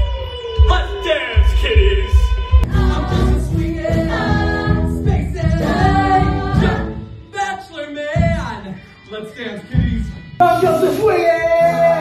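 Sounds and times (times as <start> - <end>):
pulsing low band accompaniment: 0.0 - 7.3.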